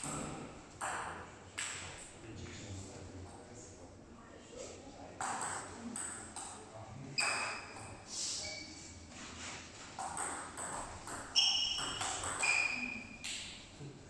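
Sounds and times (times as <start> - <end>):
ball bouncing on table: 0.0 - 1.9, 5.2 - 6.6, 10.0 - 13.6
table tennis ball hits: 0.0 - 1.9, 5.2 - 6.6, 10.0 - 13.7.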